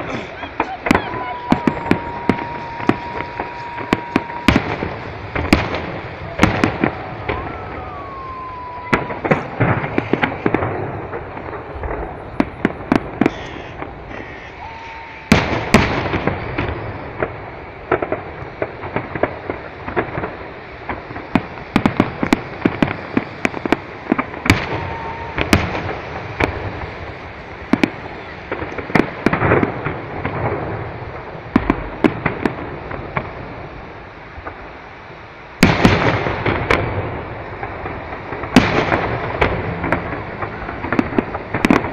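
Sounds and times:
firework shells bursting: 0:00.0 - 0:31.0
firework crackles and pops: 0:00.0 - 0:41.9
heavy firework bangs: 0:00.0 - 0:41.9.

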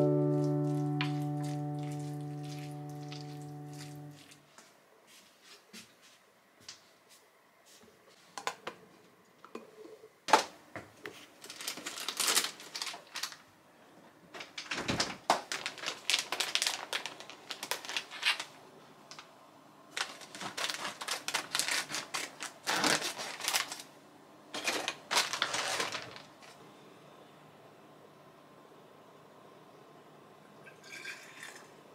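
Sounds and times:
plastic bag crinkling: 0:11.3 - 0:13.5, 0:14.4 - 0:19.3, 0:19.9 - 0:23.9, 0:24.5 - 0:26.6.

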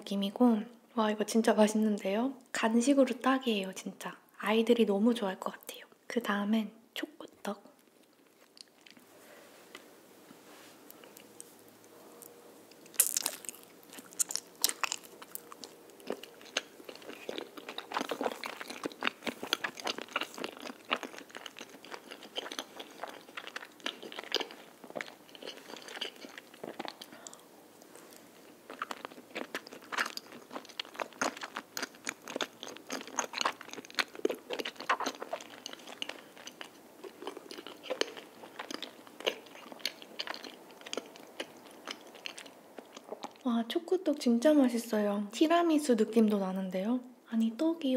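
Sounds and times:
sticky wet chewing: 0:12.7 - 0:43.4.

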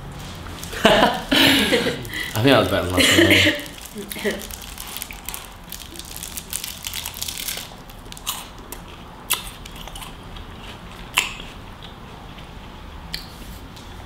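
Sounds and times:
wafer bar crunching when chewed: 0:03.6 - 0:12.0.

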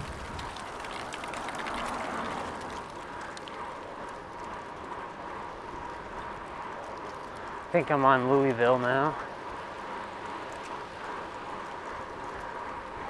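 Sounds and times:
wind on microphone: 0:00.0 - 0:00.8
bicycle tyre road noise: 0:00.0 - 0:13.0.

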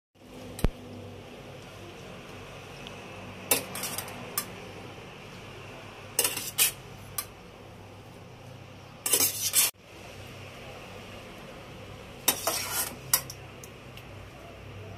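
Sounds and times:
metal spoon scraping frying pan: 0:03.5 - 0:04.5, 0:06.2 - 0:07.3, 0:09.0 - 0:09.8, 0:12.2 - 0:13.4.

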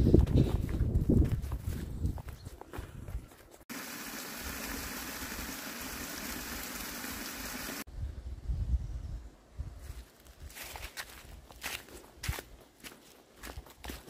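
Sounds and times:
footsteps on trail: 0:00.0 - 0:03.7, 0:09.8 - 0:14.0
running water rushing: 0:03.7 - 0:07.9.

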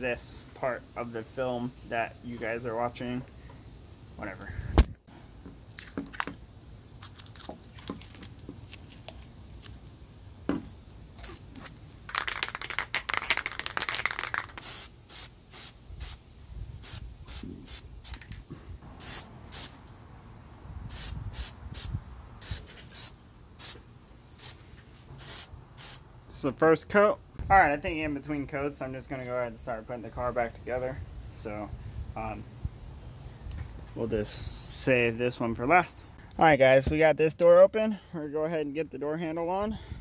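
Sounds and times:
rubber coating peeled off: 0:11.1 - 0:14.6
aerosol can spraying bursts: 0:14.6 - 0:16.2, 0:19.0 - 0:19.8, 0:20.9 - 0:23.8, 0:25.2 - 0:26.0.

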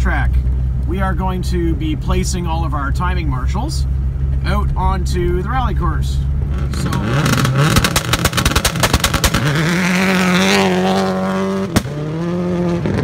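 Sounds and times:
rapid exhaust crackling: 0:00.0 - 0:13.0
rally car engine revving: 0:04.2 - 0:13.0.

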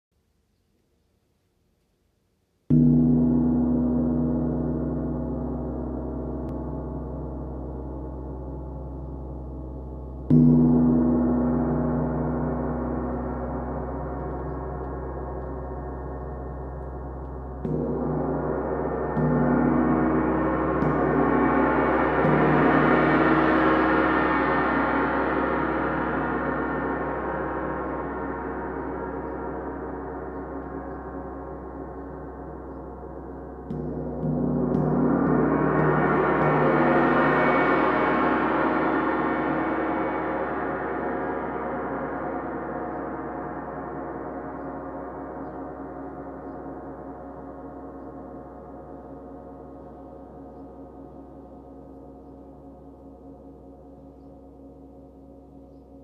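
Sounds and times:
gong struck with mallet: 0:02.7 - 0:32.6, 0:33.2 - 0:45.3.

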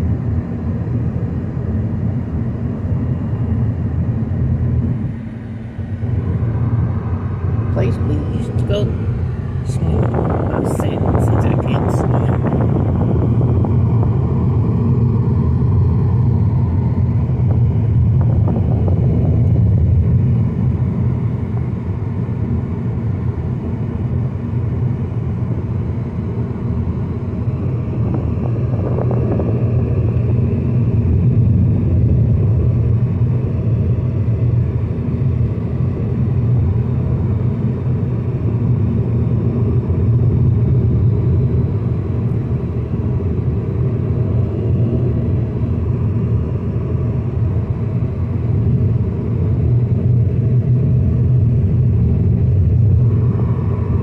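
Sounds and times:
car driving on road: 0:00.0 - 0:54.0.

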